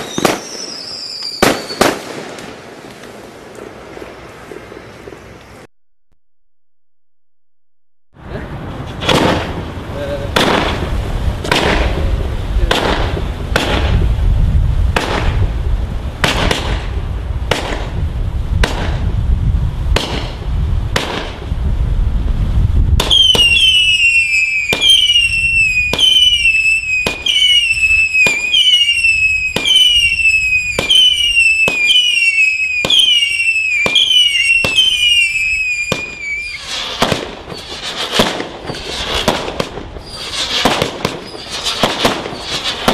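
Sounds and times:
falling firework whistles: 0:00.0 - 0:02.6, 0:23.0 - 0:42.9
firework shots firing: 0:00.0 - 0:05.6, 0:09.0 - 0:14.1, 0:14.9 - 0:15.6, 0:16.2 - 0:18.0, 0:18.6 - 0:19.1, 0:19.9 - 0:21.5, 0:23.0 - 0:42.9.

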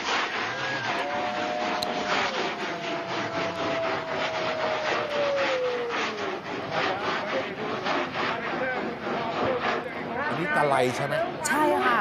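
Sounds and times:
rocket motor rasping crackle: 0:00.0 - 0:11.4
falling whistling tone: 0:00.3 - 0:06.4.

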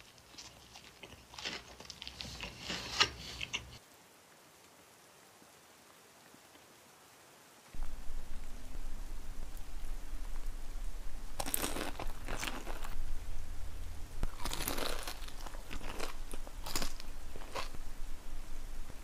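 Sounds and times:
chewing: 0:00.0 - 0:03.8, 0:11.4 - 0:13.0, 0:14.2 - 0:17.8
crunching bites of fried chicken: 0:11.4 - 0:13.0, 0:14.3 - 0:17.8.

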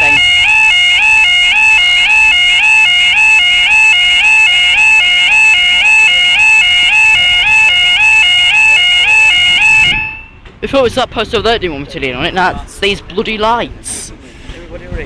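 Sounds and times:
two-tone electronic alarm: 0:00.0 - 0:10.4.

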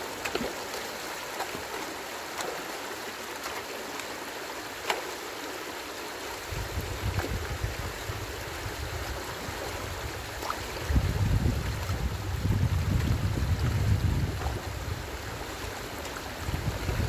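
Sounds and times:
stream water running: 0:00.0 - 0:17.0
wind buffeting the microphone: 0:06.4 - 0:17.0.

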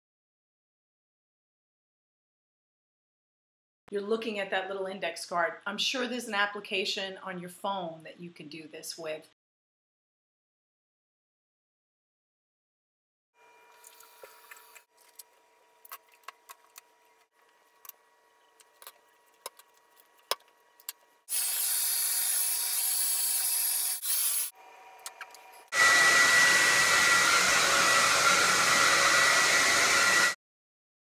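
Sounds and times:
hair dryer running: 0:25.7 - 0:30.4.

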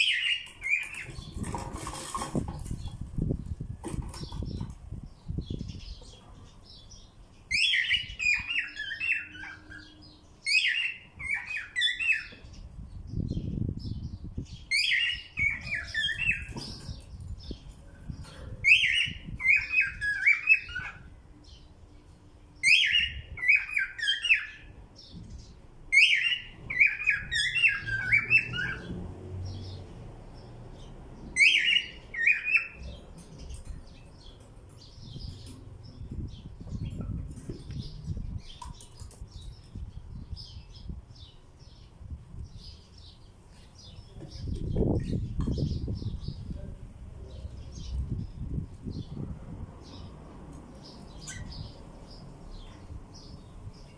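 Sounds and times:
cockatiel chirping and whistling: 0:07.5 - 0:09.8, 0:10.5 - 0:12.2, 0:18.7 - 0:21.0, 0:22.6 - 0:24.6, 0:26.0 - 0:28.8, 0:31.4 - 0:32.8.

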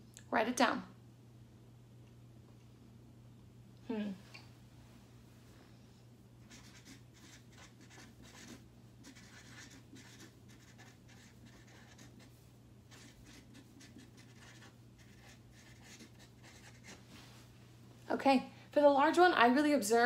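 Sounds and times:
steady low hum: 0:00.0 - 0:20.0
marker scratching on paper: 0:06.5 - 0:12.3, 0:12.9 - 0:17.0.

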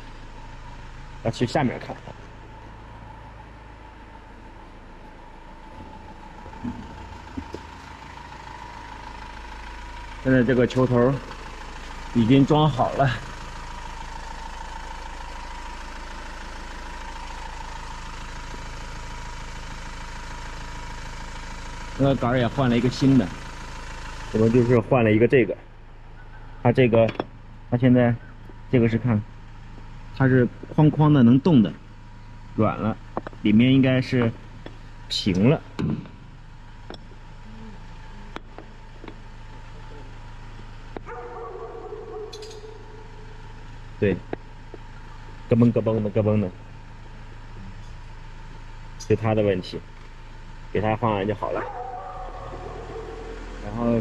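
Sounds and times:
constant high whine: 0:00.0 - 0:54.0
engine idling hum: 0:00.0 - 0:54.0
sharp clicks of ball joint: 0:42.3 - 0:42.7.

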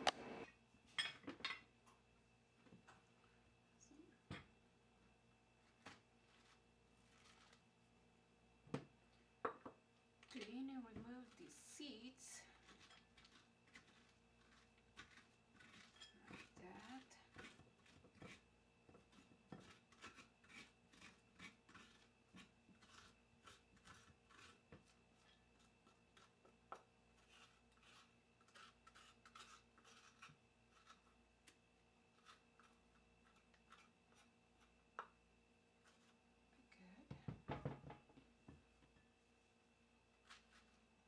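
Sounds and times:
spoon scraping squash: 0:05.6 - 0:07.8, 0:10.2 - 0:35.2, 0:35.8 - 0:36.3, 0:40.1 - 0:41.0
knocks on wooden cutting board: 0:37.1 - 0:38.0.

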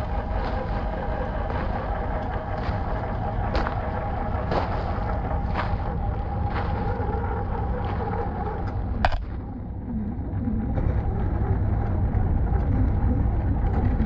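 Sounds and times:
wind rumble on microphone: 0:00.0 - 0:14.0
stones clicking: 0:09.0 - 0:09.3.

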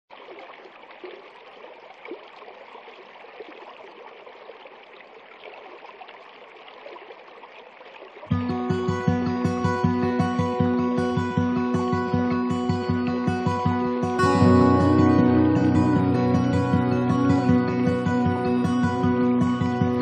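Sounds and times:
water splashes: 0:00.1 - 0:08.3
stream running over stones: 0:00.1 - 0:08.4
loud music with plucked beat: 0:14.2 - 0:20.0.

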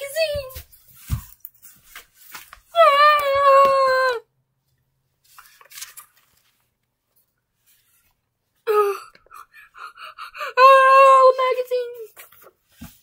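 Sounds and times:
faint handling noises: 0:04.6 - 0:08.5.

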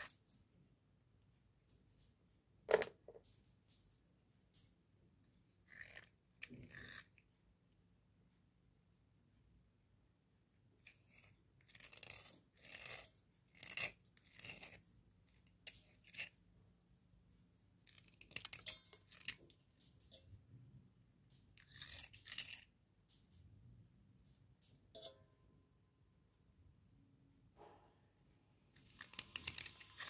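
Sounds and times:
slate pencils crunching: 0:28.8 - 0:30.0.

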